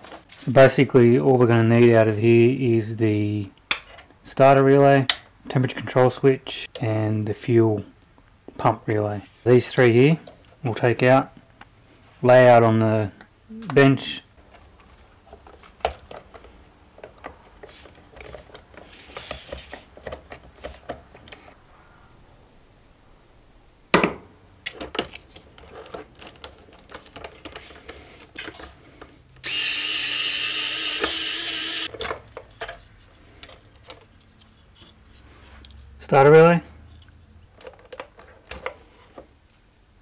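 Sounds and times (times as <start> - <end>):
small parts and tools rattling: 14.4 - 21.5, 24.7 - 35.0, 36.9 - 39.3
power drill running: 29.4 - 31.9.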